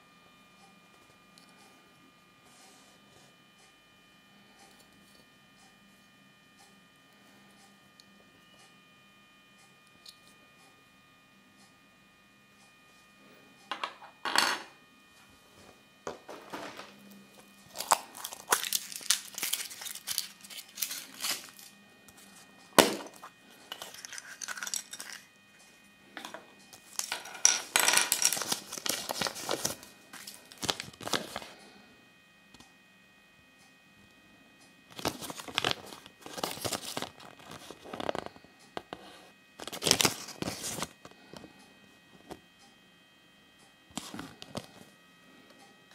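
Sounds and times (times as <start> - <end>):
paper crinkling and rustling: 17.6 - 25.3, 26.8 - 31.6, 34.9 - 38.4, 39.6 - 41.0.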